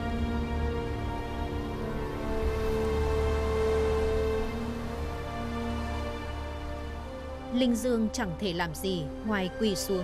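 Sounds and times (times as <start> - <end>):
low drone: 0.0 - 7.5
sustained background music: 0.0 - 10.0.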